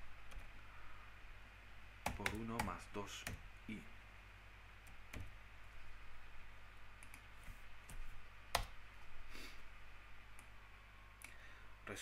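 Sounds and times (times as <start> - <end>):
faint low hum: 0.0 - 12.0
computer keyboard keystrokes: 2.0 - 3.4.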